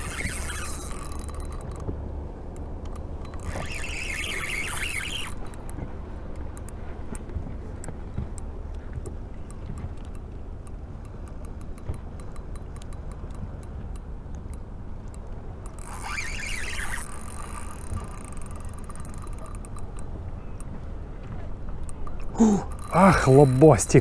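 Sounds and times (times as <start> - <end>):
high squealing scrape and whine: 0.0 - 1.6, 3.4 - 5.4, 15.8 - 19.6
fishing reel winding: 0.0 - 1.8, 2.8 - 5.8, 11.1 - 20.2, 22.0 - 24.0
faint ticks: 0.0 - 24.0.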